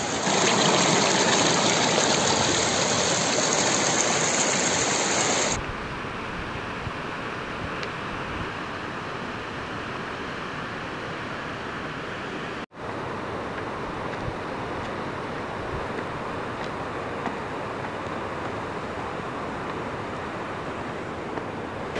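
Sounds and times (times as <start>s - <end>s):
stream rushing over rocks: 0.0s - 5.6s.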